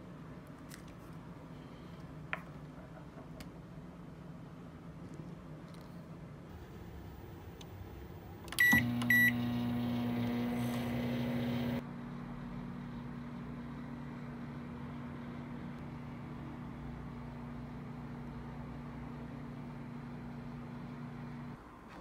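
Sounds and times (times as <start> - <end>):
microwave humming: 6.5 - 11.8
microwave keypad beeping: 8.5 - 11.8.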